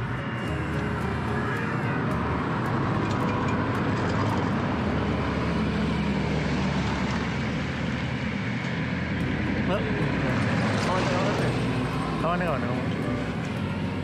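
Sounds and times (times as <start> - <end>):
cars driving past: 0.0 - 14.0.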